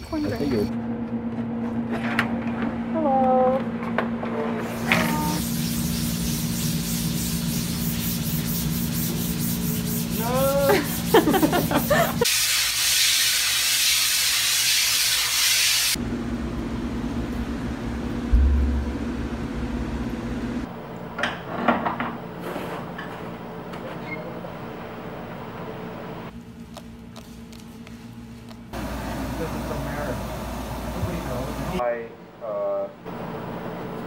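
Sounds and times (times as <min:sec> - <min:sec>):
steady hum: 0:15.9 - 0:34.0
low thump: 0:18.3 - 0:20.3.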